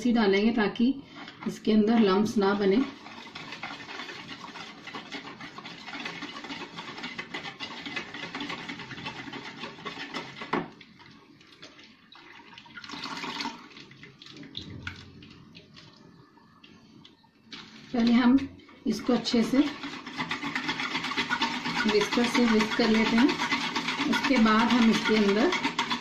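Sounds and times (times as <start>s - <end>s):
whisk beating batter in bowl: 1.6s - 12.0s, 18.9s - 26.0s
buttermilk pouring: 2.8s - 18.1s.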